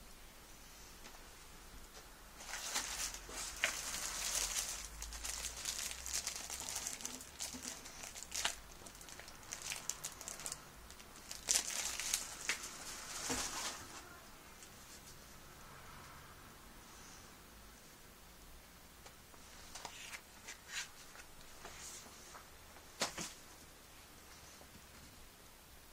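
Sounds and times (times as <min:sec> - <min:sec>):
plastic wrap crinkling: 0:02.4 - 0:14.2.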